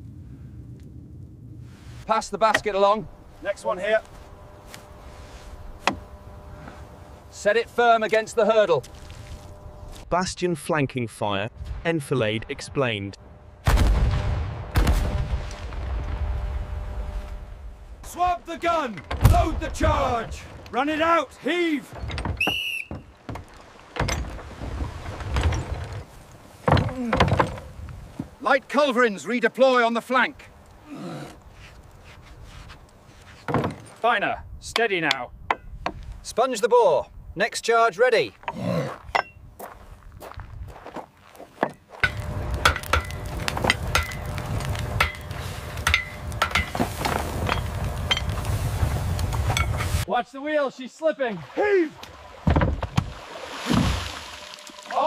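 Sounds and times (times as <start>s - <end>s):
forge fire rumble: 11.5s - 21.2s, 42.1s - 50.1s
heavy wooden carriage rolling: 19.0s - 28.4s, 42.1s - 50.0s
shrill whistle blast: 22.4s - 23.1s
hammer striking iron on anvil: 45.0s - 46.8s.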